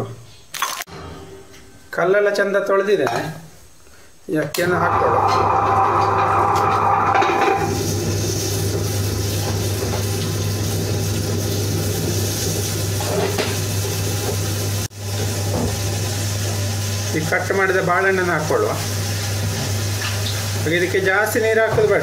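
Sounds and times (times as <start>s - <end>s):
wet grinder motor humming: 4.8s - 16.9s.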